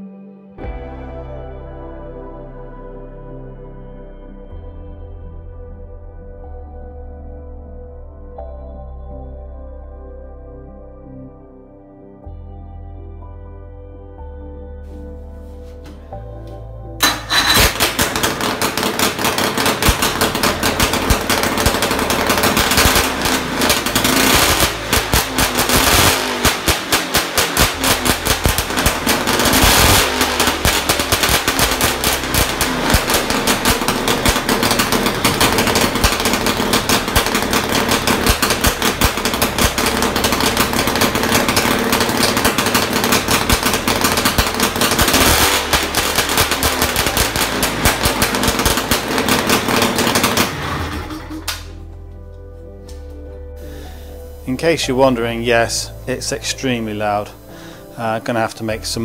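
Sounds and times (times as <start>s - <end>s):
loud two-stroke engine crackling: 17.0s - 51.8s.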